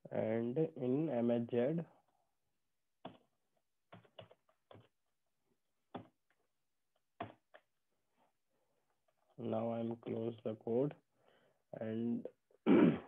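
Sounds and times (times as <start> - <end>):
typing on keyboard: 3.9 - 4.9.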